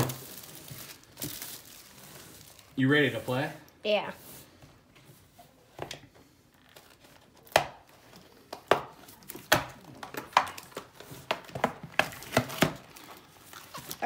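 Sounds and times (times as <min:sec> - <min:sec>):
cardboard and wrapping tearing: 0:00.0 - 0:03.5, 0:09.2 - 0:14.0.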